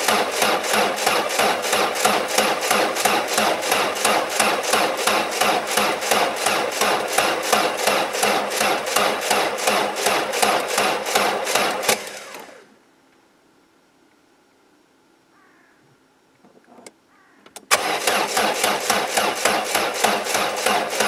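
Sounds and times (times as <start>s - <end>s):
engine cranking by starter motor: 0.0s - 12.7s, 17.6s - 21.0s
engine spinning down: 0.0s - 12.7s, 17.7s - 21.0s.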